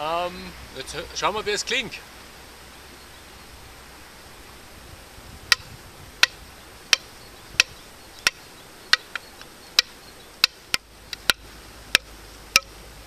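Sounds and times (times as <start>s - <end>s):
wooden stick knocks with ringing: 5.5s - 12.8s.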